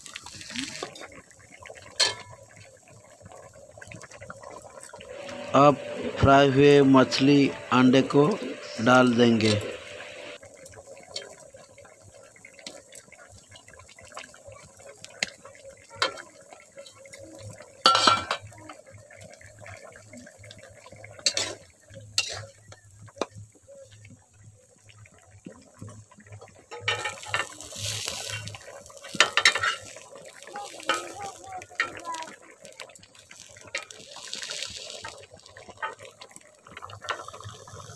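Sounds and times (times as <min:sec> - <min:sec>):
hiss: 0:27.2 - 0:31.5, 0:33.7 - 0:35.4.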